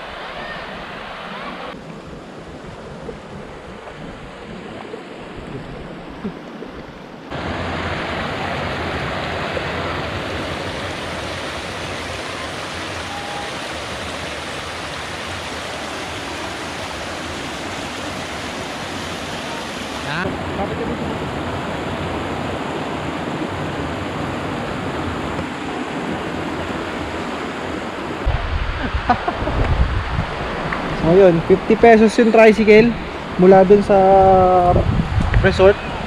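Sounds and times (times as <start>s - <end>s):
river water rushing over rocks: 0.0s - 34.0s.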